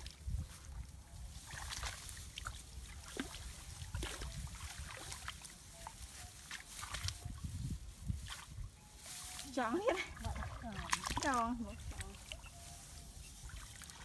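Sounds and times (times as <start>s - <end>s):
hands splashing in muddy water: 1.5s - 5.5s, 10.2s - 12.4s.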